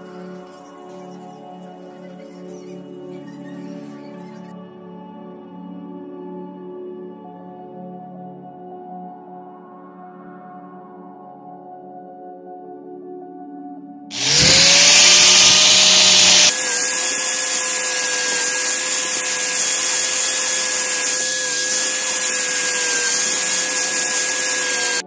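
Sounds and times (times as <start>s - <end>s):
angle grinder whine: 14.1s - 25.0s.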